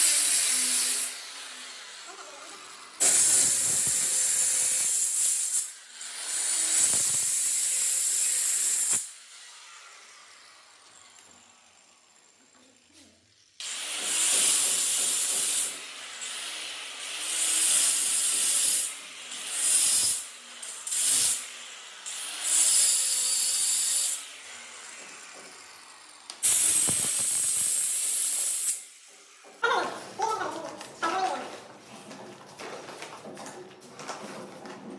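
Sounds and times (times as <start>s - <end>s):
stone cutter cutting granite: 0.0s - 10.7s, 13.6s - 29.4s.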